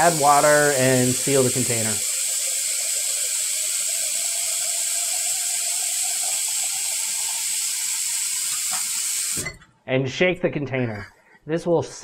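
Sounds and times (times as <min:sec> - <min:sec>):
faucet filling a plastic jar: 0:00.0 - 0:09.6.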